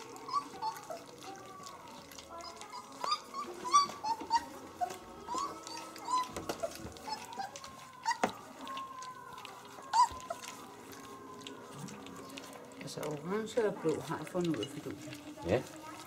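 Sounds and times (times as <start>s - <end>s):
puppies eating smacking sounds: 0.0s - 16.0s
puppies whimpering and squeaking: 0.0s - 16.0s.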